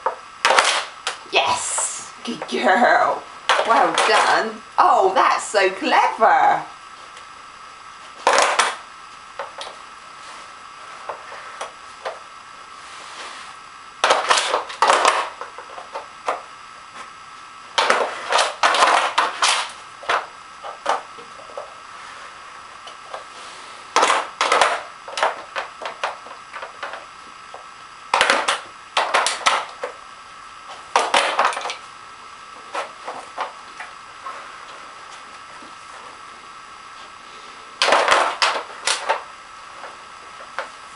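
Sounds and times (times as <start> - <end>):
plastic toy clattering and scraping: 3.5 - 4.3.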